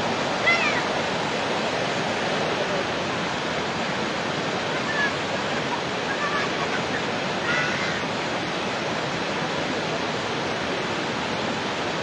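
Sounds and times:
floodwater rushing roar: 0.0s - 12.0s.

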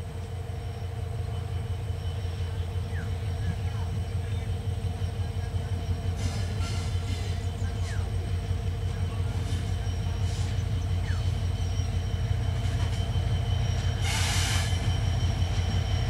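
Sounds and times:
diesel locomotive engine droning: 0.0s - 16.0s
hiss burst: 14.0s - 14.8s.

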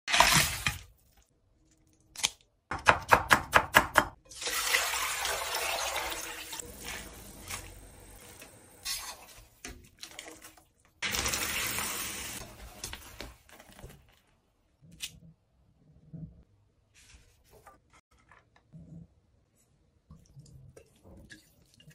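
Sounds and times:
running water splashing: 4.5s - 12.6s.

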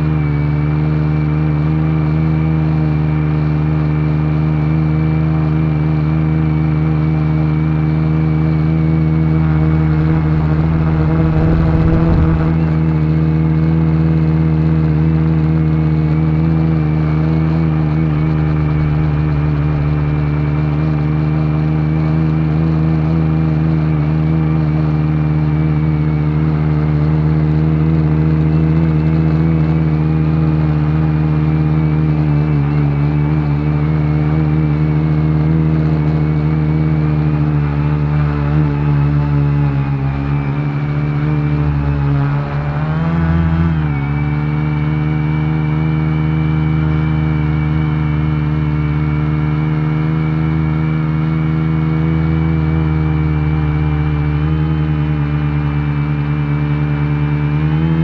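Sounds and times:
drone motors humming: 7.9s - 23.0s, 33.9s - 48.8s
wind rumble on microphone: 8.7s - 15.2s.

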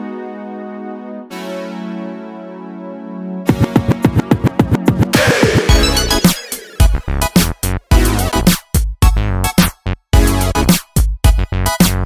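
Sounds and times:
held synth chord: 0.0s - 4.2s
fast electronic beats dropping in pitch: 3.5s - 8.3s.

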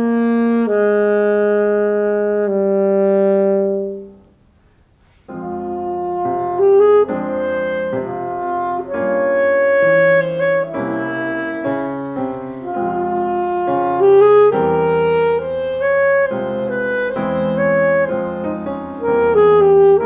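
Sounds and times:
piano accompaniment: 0.0s - 4.2s, 5.2s - 20.0s
saxophone melody: 0.0s - 4.3s, 5.3s - 20.0s.

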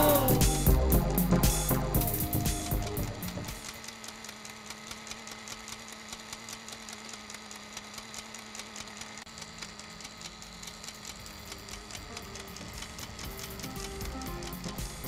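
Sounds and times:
sewing machine running: 3.1s - 15.0s.

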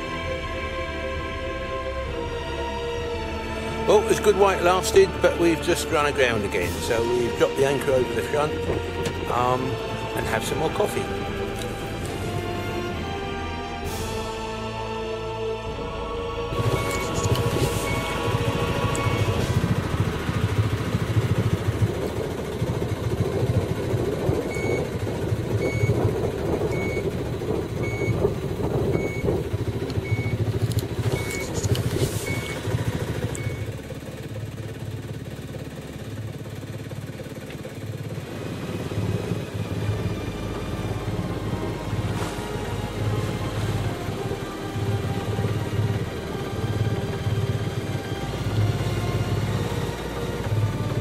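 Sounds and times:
boat engine running: 0.0s - 51.0s
electronic alarm beeping: 16.5s - 19.6s, 24.5s - 24.9s, 25.6s - 26.0s, 26.7s - 27.1s, 27.8s - 28.2s, 28.9s - 29.3s, 30.0s - 30.4s, 31.0s - 33.7s.

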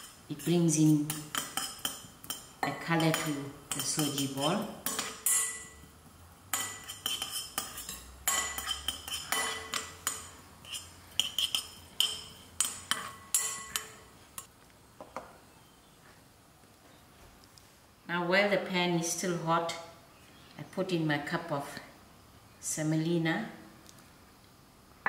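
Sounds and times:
metal spoon stirring in glass bowl: 0.0s - 5.8s, 6.5s - 14.1s.

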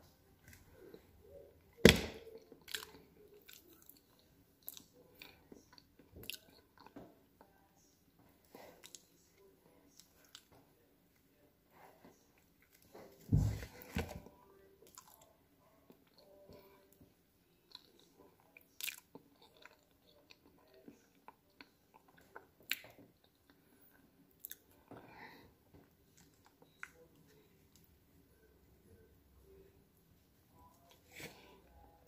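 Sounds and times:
person chewing banana: 2.3s - 7.6s, 17.7s - 27.1s.

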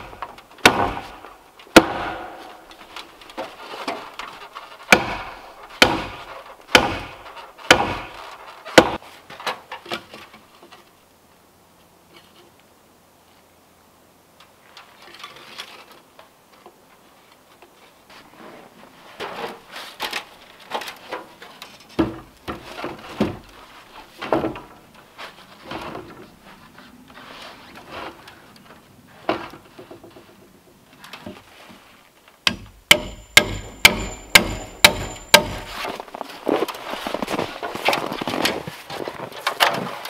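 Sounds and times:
wood knocking and scraping: 19.2s - 26.4s
hammer driving nail: 32.5s - 35.8s.

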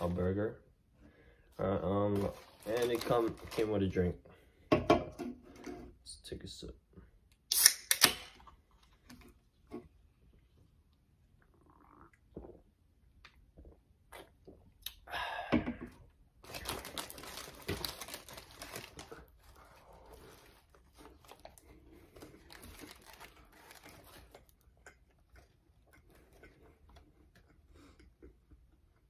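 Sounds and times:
paper wrapper crinkling: 2.1s - 4.0s, 16.4s - 24.6s.

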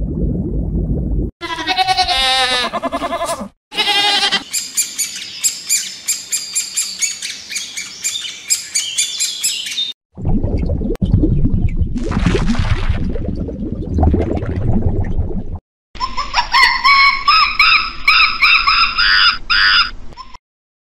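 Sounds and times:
sheep bleating: 1.4s - 4.4s
birds chirping: 4.3s - 9.9s.

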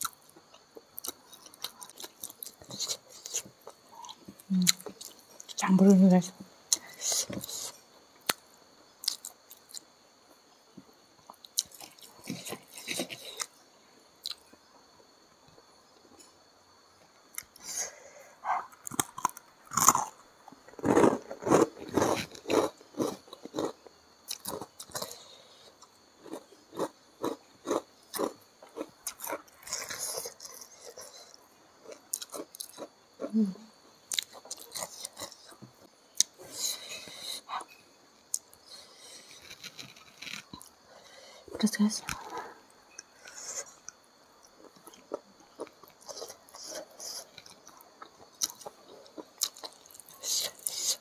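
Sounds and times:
person chewing food: 0.0s - 5.6s, 18.4s - 33.2s, 33.8s - 51.0s.

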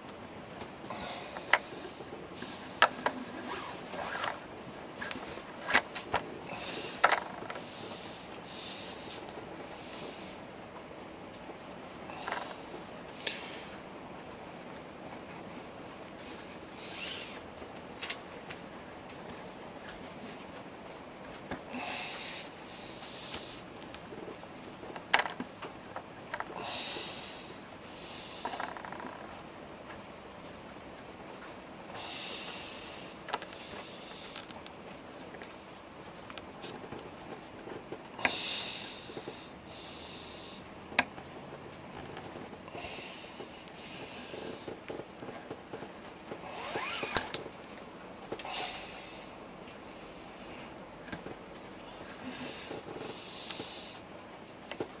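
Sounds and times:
cord rustling: 1.3s - 7.7s
cord rustling and scraping: 1.3s - 7.9s, 15.0s - 21.7s, 41.0s - 42.7s, 43.4s - 48.4s.

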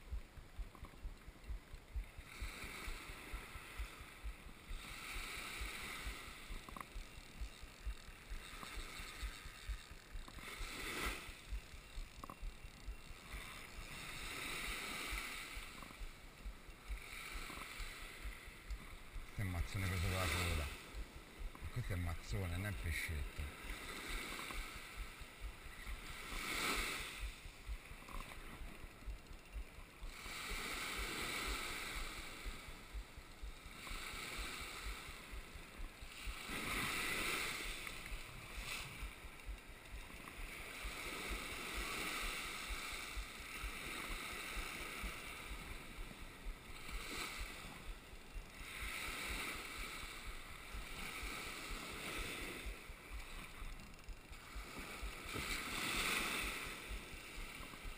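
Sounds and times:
surf washing in and out: 0.0s - 57.9s
fishing reel cranking: 3.8s - 30.6s, 44.6s - 57.9s.

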